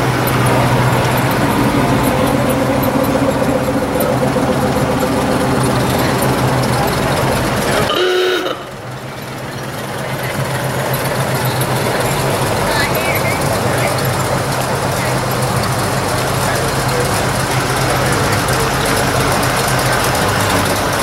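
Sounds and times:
car engines droning: 0.0 - 21.0
short horn toot: 7.8 - 8.8.

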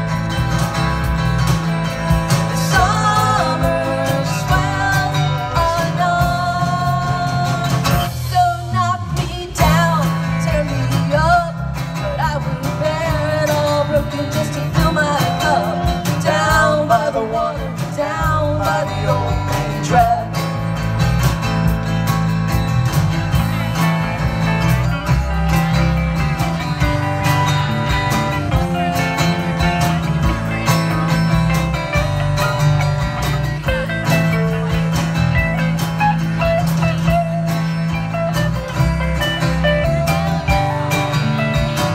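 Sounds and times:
acoustic guitar: 0.0 - 41.9
drums: 0.0 - 41.9
electric bass line: 0.0 - 41.9
electric guitar: 0.0 - 41.9
woman singing: 2.6 - 20.4.

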